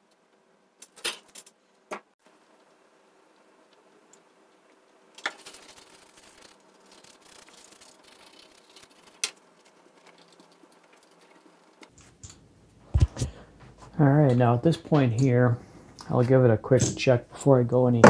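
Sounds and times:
toothbrush scrubbing circuit board: 0:05.4 - 0:11.6.

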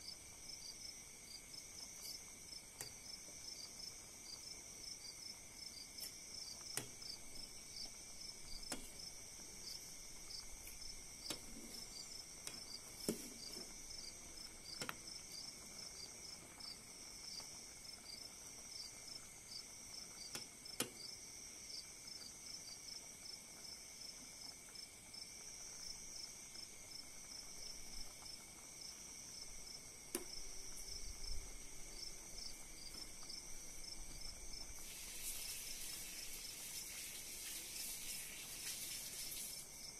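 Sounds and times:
crickets chirping: 0:00.0 - 0:39.9
boiling pot clicks and pops: 0:01.9 - 0:03.0, 0:05.9 - 0:16.5, 0:20.1 - 0:21.1, 0:30.0 - 0:30.9.

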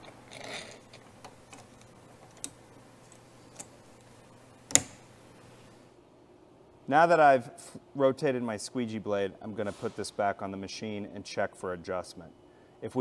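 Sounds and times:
sharp latch snap: 0:04.7 - 0:05.1.

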